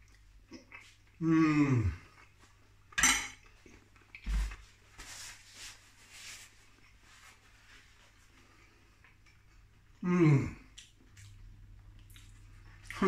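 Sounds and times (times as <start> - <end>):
cutlery clinking on dish: 3.0 - 3.4
paper towel rustling: 4.3 - 8.6.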